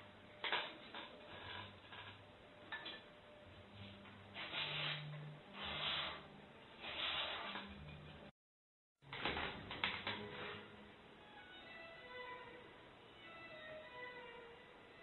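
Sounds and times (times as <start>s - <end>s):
knife scraping wood: 4.4s - 8.0s.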